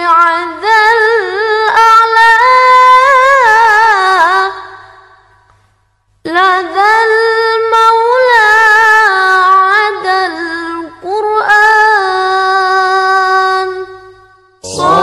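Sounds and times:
solo voice singing unaccompanied: 0:14.6 - 0:15.0.

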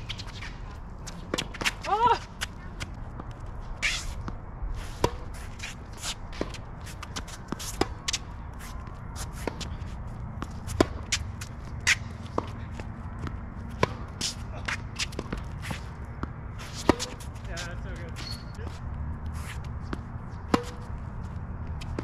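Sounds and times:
racquets hitting tennis ball: 0:00.0 - 0:22.0
shoes scuffing on court: 0:00.0 - 0:22.0
ball bouncing: 0:10.4 - 0:15.6.

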